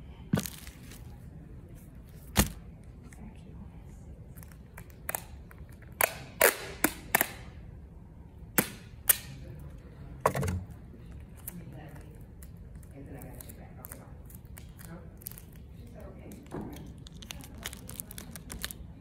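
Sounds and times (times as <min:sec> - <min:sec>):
low background hum: 0:00.0 - 0:19.0
sharp clicks and knocks: 0:10.2 - 0:10.7.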